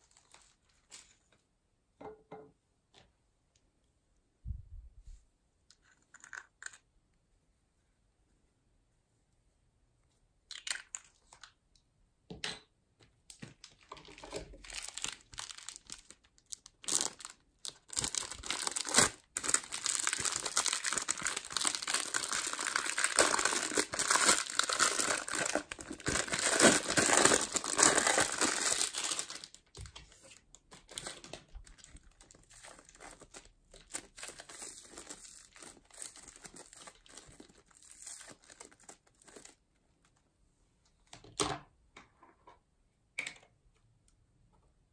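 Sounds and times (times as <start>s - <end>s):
plastic bag crinkling: 13.6s - 30.0s, 30.7s - 39.6s
foam beads crackling: 14.6s - 29.6s.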